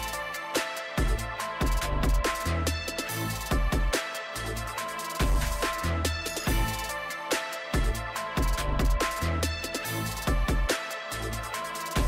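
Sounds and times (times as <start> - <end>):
bass drum kicks: 6.5 - 6.8, 7.8 - 9.1.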